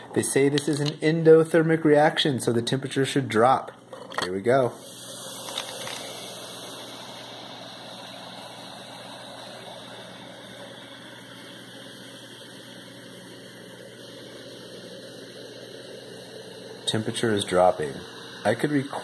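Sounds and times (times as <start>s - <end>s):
fizzing gas bubbles hissing: 4.5s - 19.0s.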